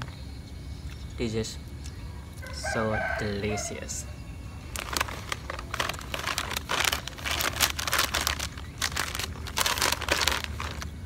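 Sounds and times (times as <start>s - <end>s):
snack bag crinkling: 4.7s - 11.0s.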